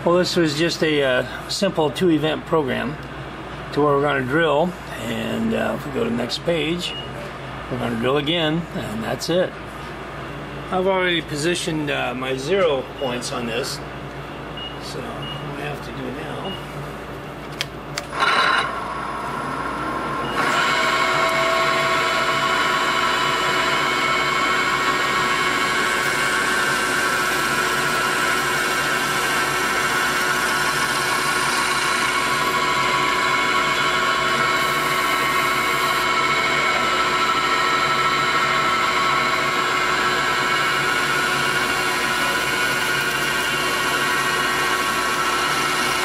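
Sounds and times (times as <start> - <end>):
milling machine spindle whine: 18.0 - 46.0
drill bit cutting metal: 18.1 - 46.0.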